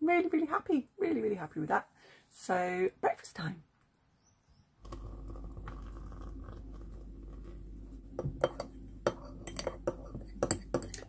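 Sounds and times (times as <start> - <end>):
dishes and cutlery clinking: 8.2 - 11.0.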